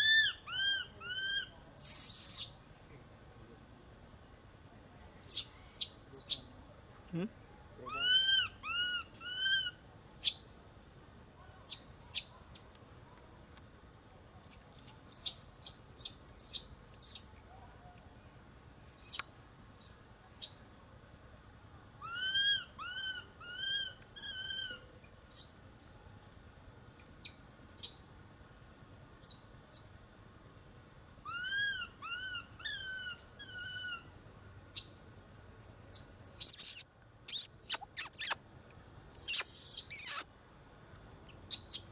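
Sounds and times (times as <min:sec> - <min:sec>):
short arching animal calls: 0:07.9 - 0:10.4, 0:35.9 - 0:38.4, 0:39.1 - 0:40.3
high thin chirps: 0:36.3 - 0:38.4, 0:39.2 - 0:40.3.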